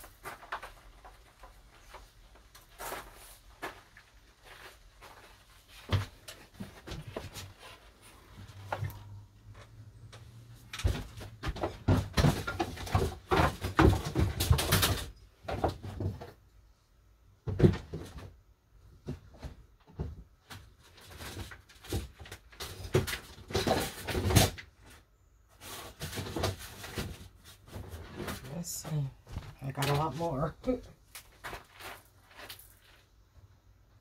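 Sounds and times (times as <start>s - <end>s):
wooden rods and boards clattering: 10.7s - 16.4s, 19.0s - 24.7s.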